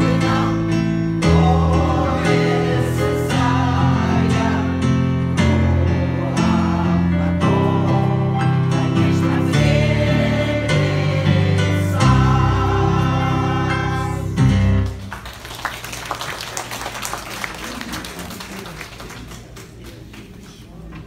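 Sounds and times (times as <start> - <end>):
choir singing with instruments: 0.0 - 14.8
audience applause: 14.8 - 20.6.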